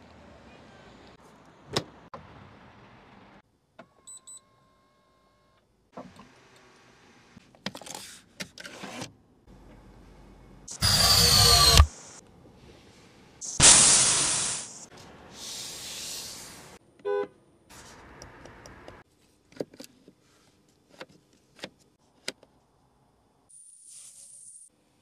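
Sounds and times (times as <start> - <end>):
loud hiss: 13.4 - 16.8
softer hiss: 13.4 - 16.8.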